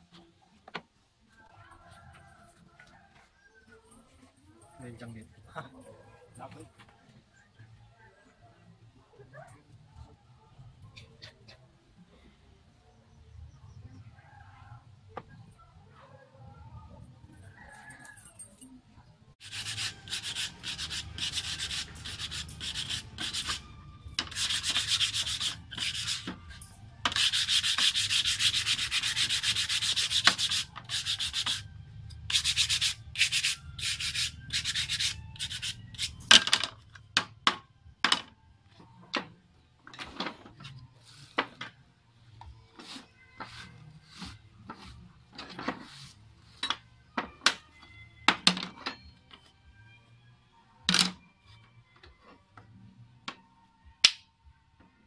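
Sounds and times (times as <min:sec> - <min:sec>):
sanding wood by hand: 0:19.4 - 0:26.4, 0:27.1 - 0:31.7, 0:32.3 - 0:36.2.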